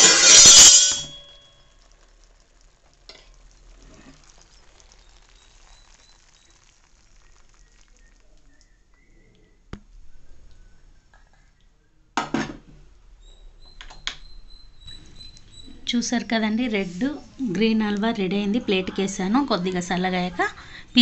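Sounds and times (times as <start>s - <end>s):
metal spoon scraping pan: 0.0s - 1.4s
faint crackling from pan: 0.0s - 11.8s.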